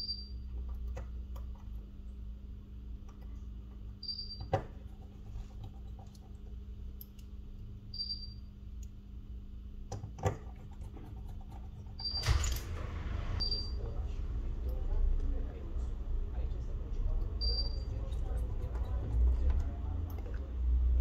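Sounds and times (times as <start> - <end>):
steady low hum: 0.0 - 21.0
small parts clicking and tapping: 5.6 - 7.4.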